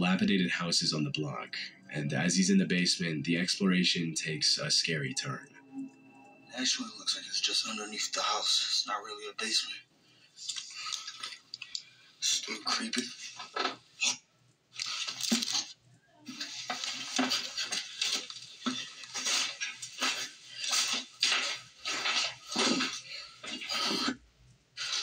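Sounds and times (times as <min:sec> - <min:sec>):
footsteps crunching over broken glass: 0:16.4 - 0:23.7.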